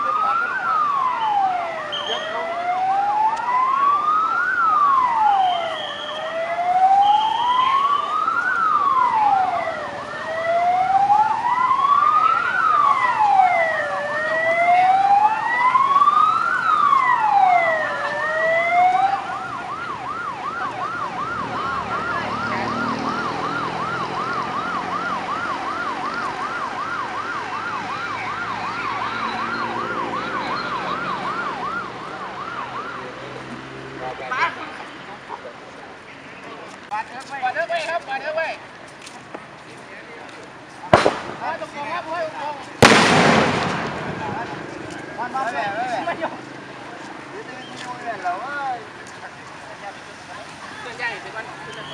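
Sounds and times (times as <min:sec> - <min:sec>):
siren yelping: 0:00.0 - 0:33.3
siren wailing: 0:00.0 - 0:33.5.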